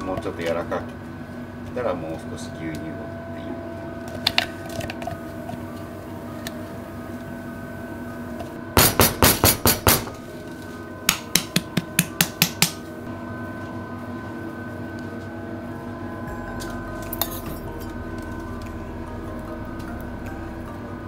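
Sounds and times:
kitchenware tapping on steel: 8.8s - 10.1s.

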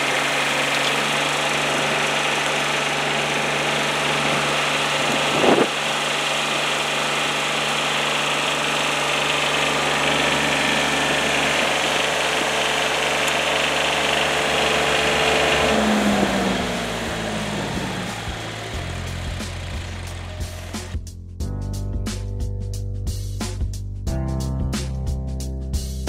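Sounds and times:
diesel engine running: 0.0s - 21.0s
engine knock: 0.0s - 21.0s.

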